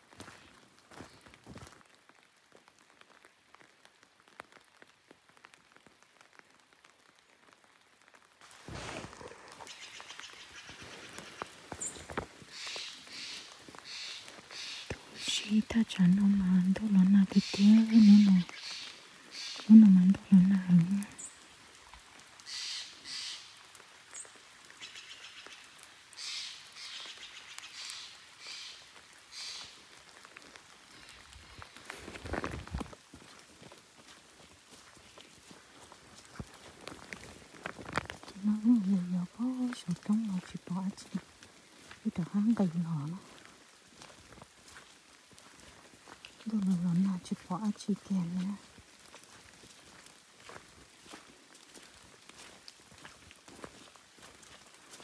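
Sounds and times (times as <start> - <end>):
footsteps crunching dry leaves: 0.0 - 1.9, 8.4 - 15.2, 27.9 - 38.4, 41.2 - 46.7, 48.4 - 55.0.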